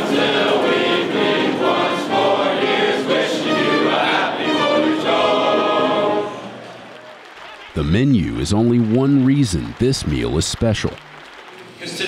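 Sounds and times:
group singing in chorus: 0:00.0 - 0:06.6.

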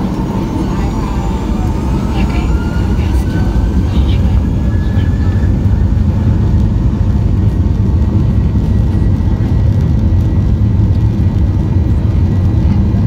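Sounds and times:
faint high tone: 0:00.0 - 0:05.7
aircraft cabin rumble: 0:00.0 - 0:13.0.

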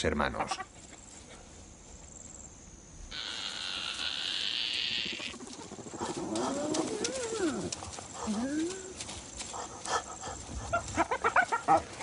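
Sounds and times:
insect buzzing: 0:02.1 - 0:09.4
animal call sliding in pitch: 0:03.1 - 0:05.4.

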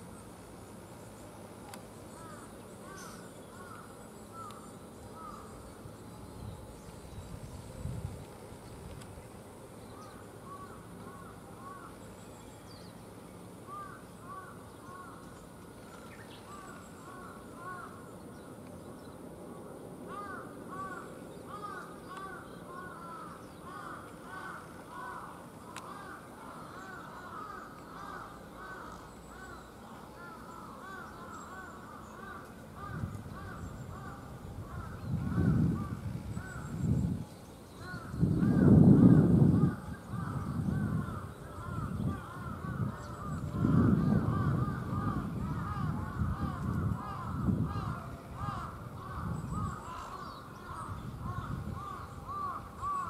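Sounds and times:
flock of birds calling: 0:20.1 - 0:37.1, 0:37.8 - 0:53.0.

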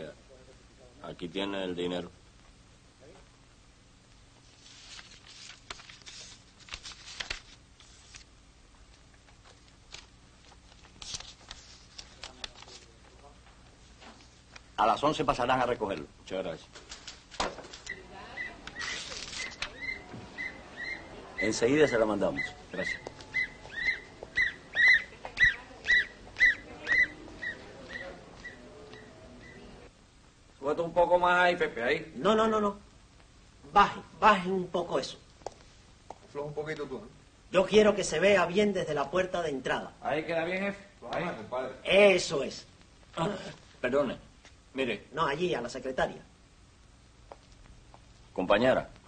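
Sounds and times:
faint low hum: 0:00.0 - 0:49.0
paper rustling and crinkling: 0:04.4 - 0:08.3, 0:09.4 - 0:13.2, 0:18.7 - 0:20.0
animal chirping cries: 0:17.9 - 0:29.6.

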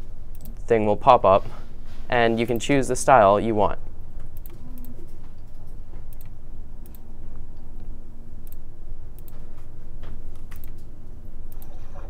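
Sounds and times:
steady low hum: 0:00.0 - 0:12.0
computer mouse clicking: 0:00.3 - 0:00.6, 0:04.2 - 0:07.0, 0:07.8 - 0:08.6, 0:09.2 - 0:09.4, 0:10.3 - 0:10.9, 0:11.5 - 0:11.8.

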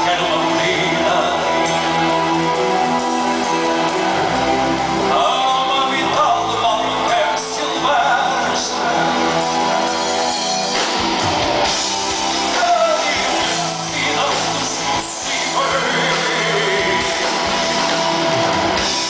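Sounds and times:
man singing: 0:00.0 - 0:02.5, 0:05.0 - 0:10.0, 0:12.4 - 0:17.6
live rock band: 0:00.0 - 0:19.0.

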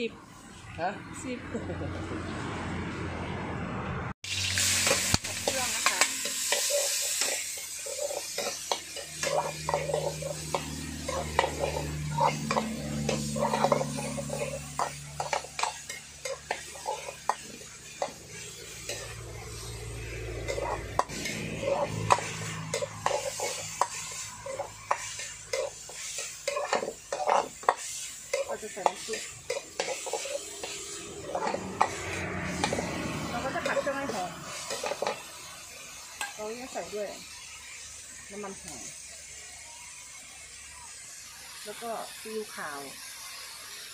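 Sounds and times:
light sizzling: 0:00.0 - 0:03.0, 0:04.2 - 0:43.9
ladle scraping a wok: 0:04.3 - 0:36.8.

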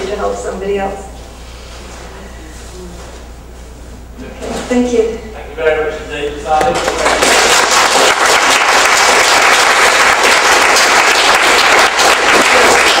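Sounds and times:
audience applauding: 0:06.8 - 0:13.0.

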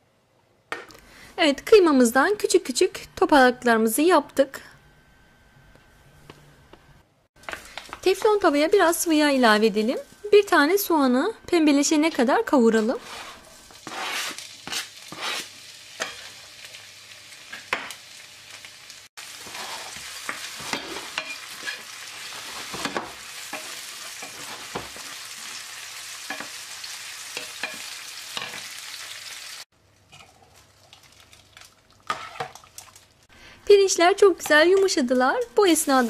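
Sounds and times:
onion sizzling in frying pan: 0:07.4 - 0:11.2, 0:11.8 - 0:30.9, 0:33.9 - 0:36.0
stirring in a pan: 0:12.7 - 0:16.8, 0:19.2 - 0:25.6, 0:29.9 - 0:33.3.

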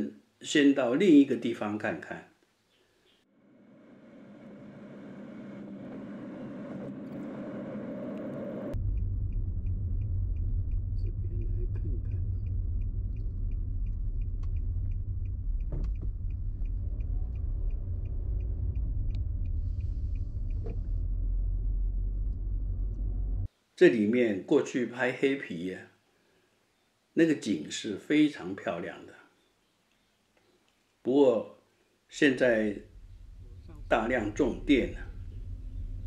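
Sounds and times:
car road noise rushing: 0:03.4 - 0:23.5, 0:32.8 - 0:36.0
car interior low rumble: 0:05.4 - 0:23.5, 0:32.8 - 0:36.0
light even ticking: 0:08.9 - 0:21.0.

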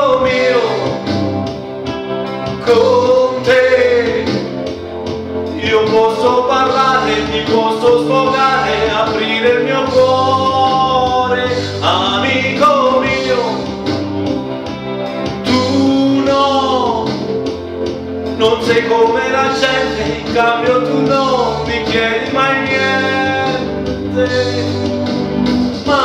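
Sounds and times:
man singing through microphone: 0:00.0 - 0:01.1, 0:02.6 - 0:04.5, 0:05.5 - 0:13.8, 0:15.4 - 0:17.3, 0:18.3 - 0:24.9, 0:25.8 - 0:26.0
backing music: 0:00.0 - 0:26.0.

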